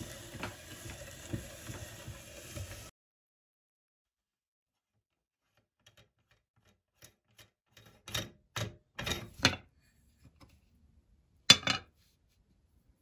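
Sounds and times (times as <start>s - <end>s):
metal clanks and scrapes: 11.5s - 12.0s.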